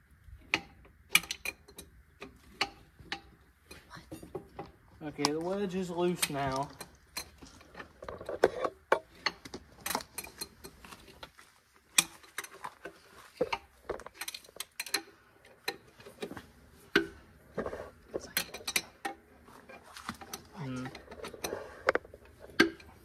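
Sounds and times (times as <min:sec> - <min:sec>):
wrench clicking on bolts: 0:00.5 - 0:02.3.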